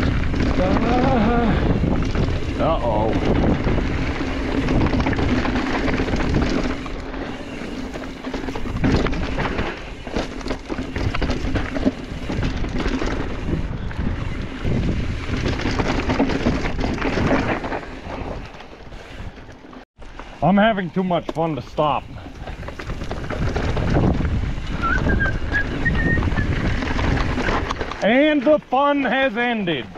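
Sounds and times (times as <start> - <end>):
tyres rolling over rock: 0.0 - 13.6
bike clattering over bumps: 0.0 - 18.8, 21.2 - 28.7
wind buffeting microphone: 0.0 - 19.5, 21.8 - 27.9.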